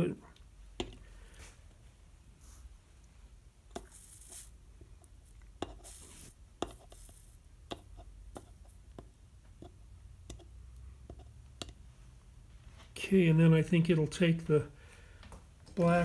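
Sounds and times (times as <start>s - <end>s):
solder sizzling: 2.4s - 11.9s.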